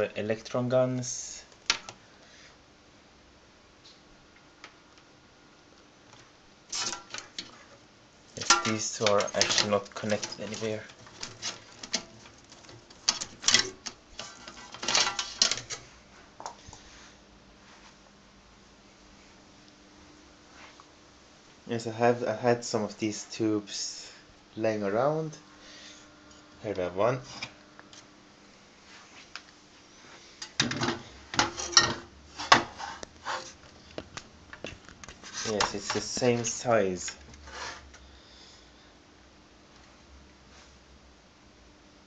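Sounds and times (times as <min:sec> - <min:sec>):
handling clicks and knocks: 0:08.4 - 0:15.8.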